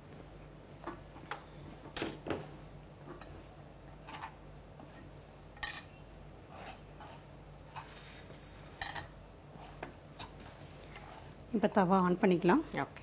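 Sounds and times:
soft rubbing of food in pan: 6.1 - 12.4.

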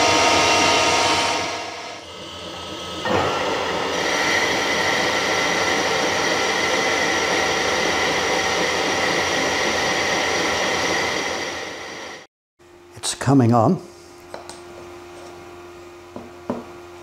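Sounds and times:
metal lathe cutting: 0.0 - 12.3.

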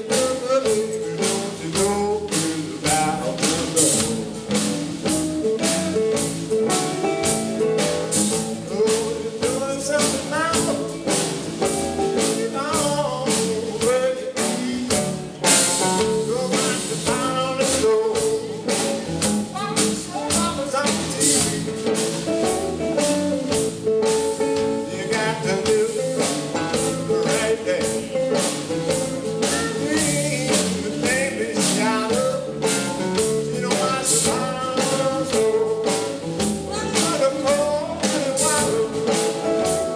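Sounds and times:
man singing into a microphone: 0.0 - 4.7, 8.3 - 11.5, 12.1 - 22.0, 24.6 - 39.9
acoustic guitar strumming: 0.0 - 39.9.

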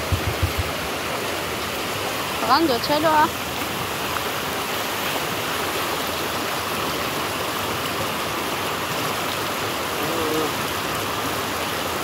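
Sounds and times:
steady rushing noise: 0.0 - 1.6.

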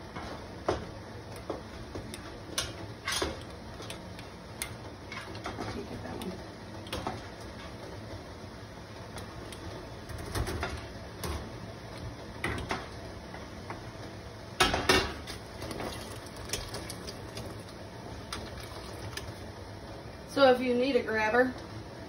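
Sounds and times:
water splashing and pouring: 15.6 - 19.4.

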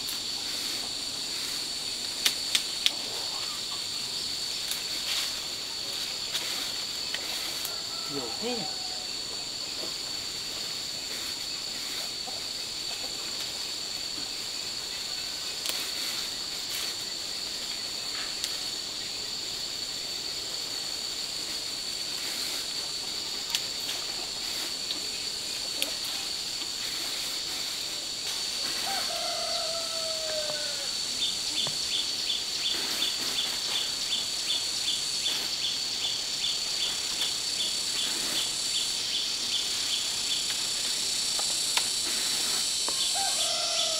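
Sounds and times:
high-pitched insect drone: 0.0 - 43.9
insect chirping rapidly: 0.0 - 43.9
rooster crowing: 7.6 - 9.2, 28.7 - 31.0, 43.0 - 43.9.

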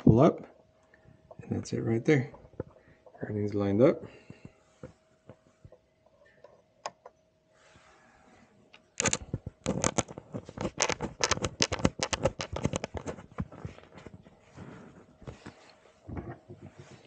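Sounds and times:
small hard parts clicking and rattling: 8.7 - 14.2.

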